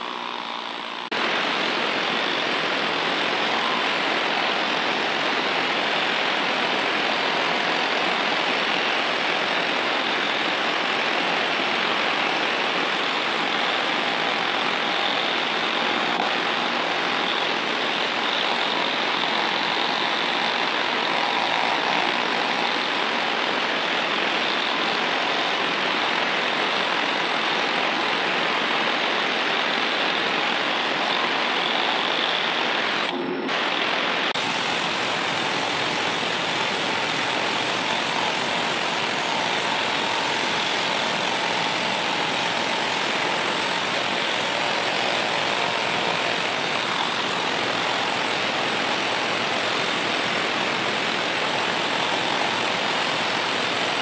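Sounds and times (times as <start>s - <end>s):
needle scaler rattling buzz: 34.4s - 54.0s.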